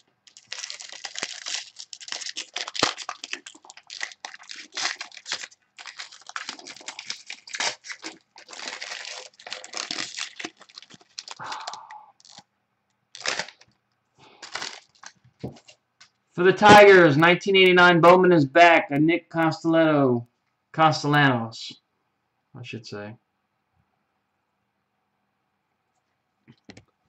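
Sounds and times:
foil wrapper crinkling and tearing: 0.0s - 12.4s, 13.1s - 15.8s.

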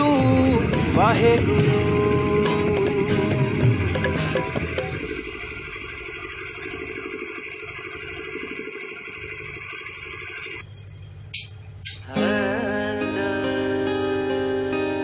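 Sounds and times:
engine idling: 0.0s - 10.6s.

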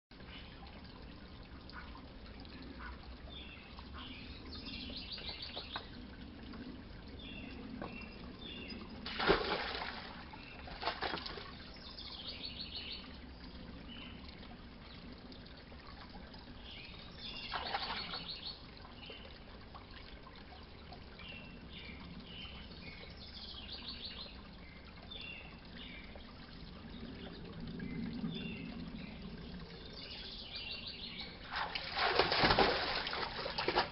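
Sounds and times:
dog splashing in water: 9.1s - 11.6s, 31.5s - 33.9s.

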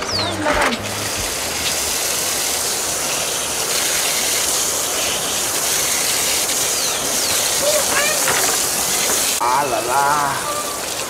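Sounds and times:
water running from tap: 0.0s - 11.0s.

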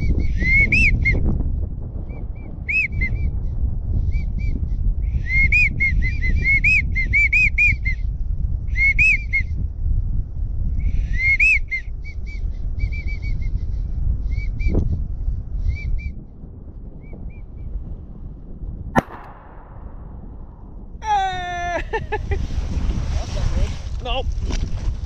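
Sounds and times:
wind rumble on microphone: 0.0s - 25.0s
sharp knock: 19.0s - 20.8s.

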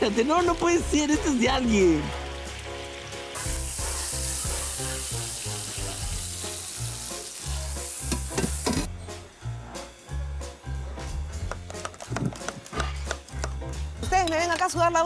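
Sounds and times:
food sizzling in a pan: 0.0s - 8.9s
background music with bass: 0.0s - 15.0s.

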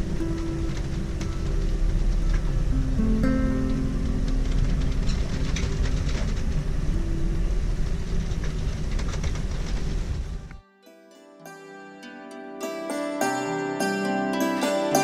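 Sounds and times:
ship engine low rumble: 0.0s - 10.6s.

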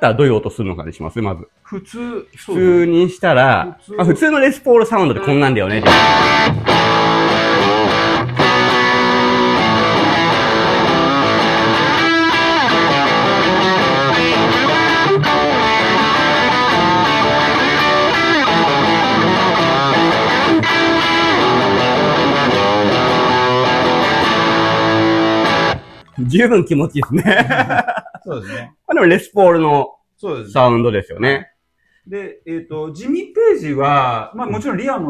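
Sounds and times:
electric guitar through an amp: 5.8s - 26.0s.

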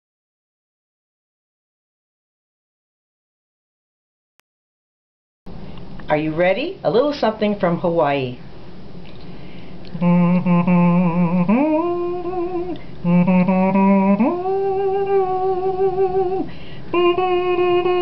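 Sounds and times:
woman humming: 9.9s - 18.0s.

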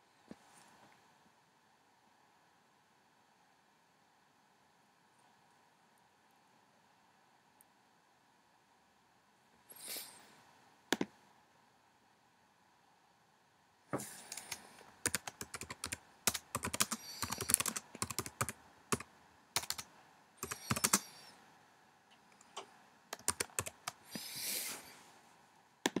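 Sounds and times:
typing on computer keyboard: 14.0s - 21.2s, 22.4s - 24.0s.

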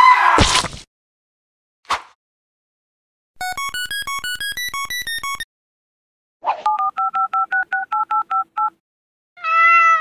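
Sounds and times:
electronic beeping melody: 3.4s - 5.5s
phone keypad tone beeps: 3.4s - 5.5s, 6.7s - 8.8s.

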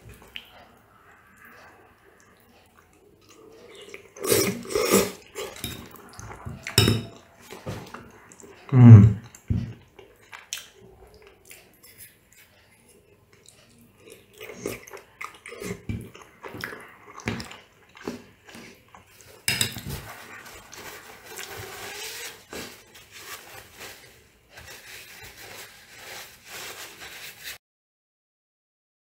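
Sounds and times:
chewing and slurping pasta: 0.1s - 25.9s
cutlery clattering onto plate: 6.7s - 7.2s, 19.5s - 20.0s
paper napkin rustling: 19.8s - 27.6s.

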